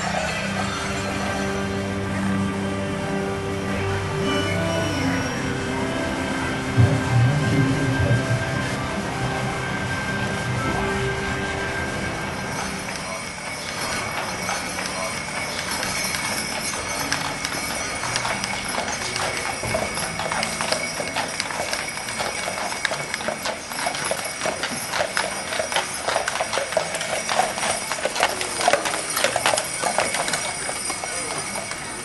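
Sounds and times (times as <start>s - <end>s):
horse hooves clip-clopping: 9.6s - 32.0s.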